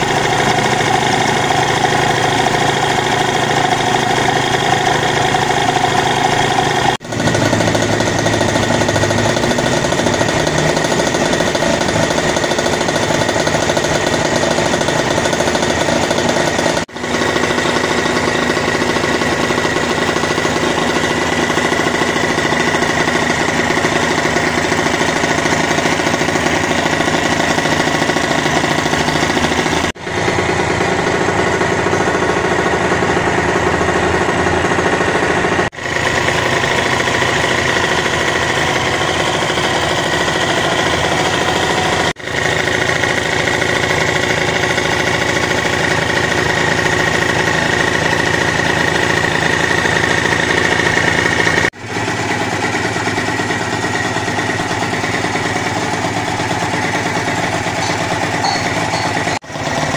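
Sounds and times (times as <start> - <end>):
two-stroke engine running: 0.0 - 59.9.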